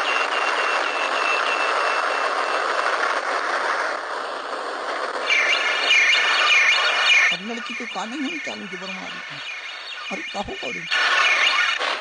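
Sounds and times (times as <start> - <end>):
rapid high beeping: 5.2 - 12.0.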